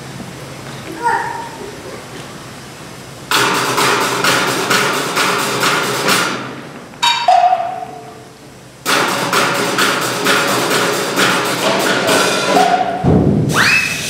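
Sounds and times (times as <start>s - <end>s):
percussion ensemble playing: 3.3s - 14.0s.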